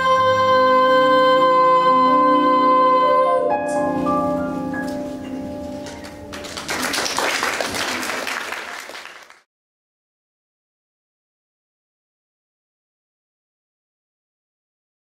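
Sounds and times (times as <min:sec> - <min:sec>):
backing track music: 0:00.0 - 0:07.3
audience applauding: 0:05.8 - 0:09.5.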